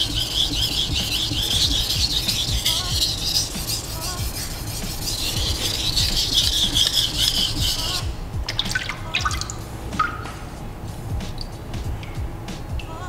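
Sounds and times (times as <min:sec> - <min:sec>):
knife scraping on whetstone: 0:00.0 - 0:08.1
water dripping: 0:05.2 - 0:10.6, 0:11.3 - 0:12.2.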